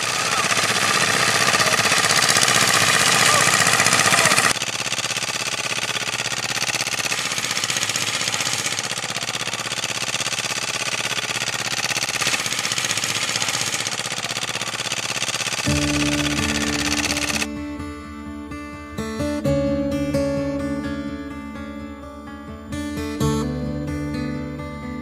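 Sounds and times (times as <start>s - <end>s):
sickle mower chattering: 0.0s - 17.5s
small engine running: 0.0s - 17.6s.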